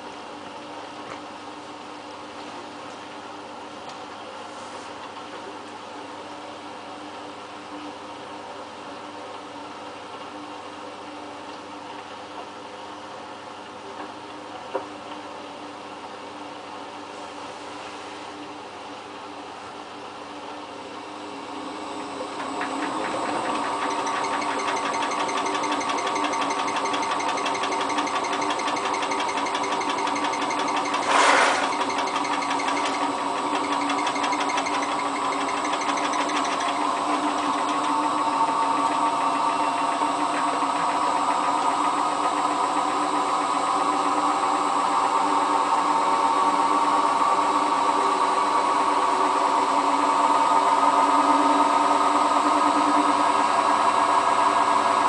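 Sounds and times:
washing machine drum spinning: 22.0s - 43.3s.

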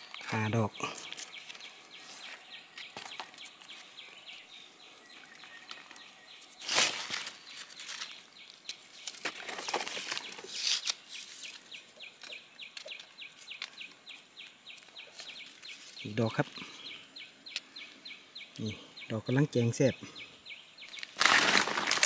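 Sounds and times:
dry leaves rustling and crackling: 5.7s - 16.1s, 20.9s - 22.0s.

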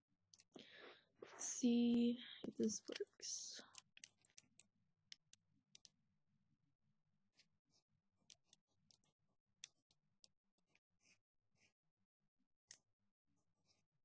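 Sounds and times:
paintbrush dabbing on paper: 10.6s - 11.8s.

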